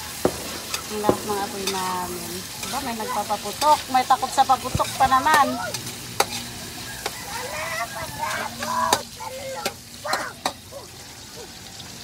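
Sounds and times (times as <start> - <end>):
meat sizzling: 0.0 - 12.0
metal spatula scraping a wok: 0.6 - 0.9, 1.6 - 7.2.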